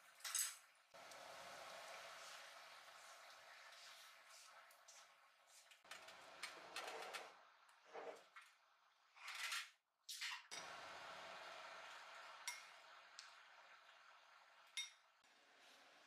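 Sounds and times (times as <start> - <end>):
spoon clinking glass bowl: 12.5 - 12.7, 14.8 - 15.0.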